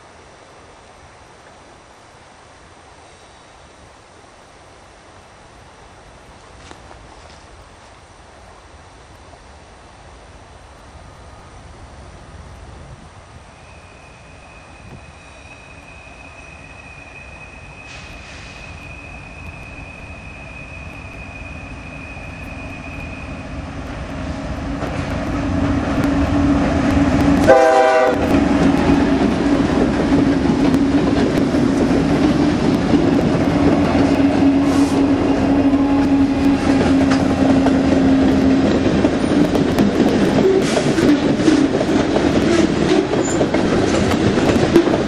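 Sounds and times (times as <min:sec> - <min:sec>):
diesel locomotive engines: 0:00.1 - 0:45.0
high steady squeal: 0:13.3 - 0:24.7
train wheel clatter: 0:24.6 - 0:45.0
train horn blast: 0:26.2 - 0:28.7, 0:34.0 - 0:38.6.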